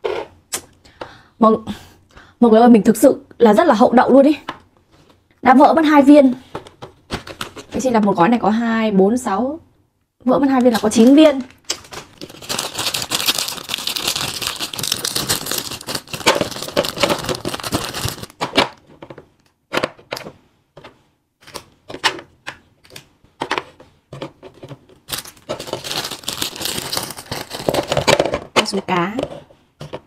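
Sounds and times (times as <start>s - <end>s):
plastic wrappers crinkling: 10.4s - 18.4s, 24.9s - 28.4s.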